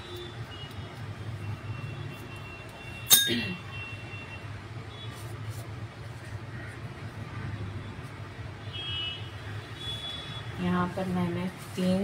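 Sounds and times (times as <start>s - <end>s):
kitchenware clink: 3.1s - 3.6s.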